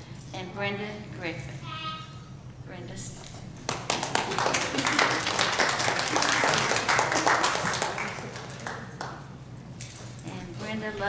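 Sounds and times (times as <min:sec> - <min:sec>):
crowd applauding: 0:03.7 - 0:09.3.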